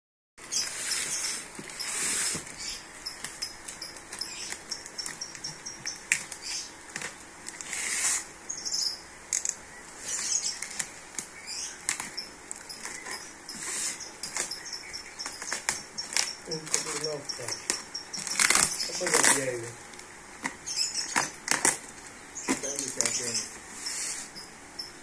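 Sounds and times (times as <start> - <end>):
plastic wrapping crinkling: 15.3 - 23.4.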